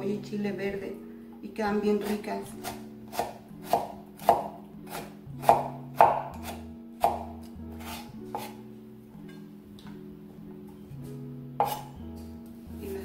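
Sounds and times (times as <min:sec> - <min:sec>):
knife chopping on wooden board: 0:02.0 - 0:08.6, 0:11.6 - 0:11.9.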